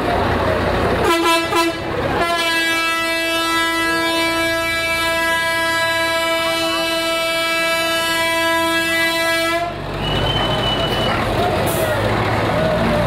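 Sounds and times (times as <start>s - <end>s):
truck air horn blast: 1.0s - 10.9s.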